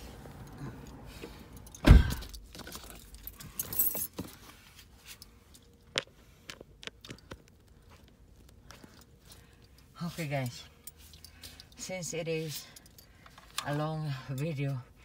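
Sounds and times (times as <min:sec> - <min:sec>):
loud thump: 0:01.8 - 0:02.3
light clicks and clinks: 0:08.4 - 0:14.8.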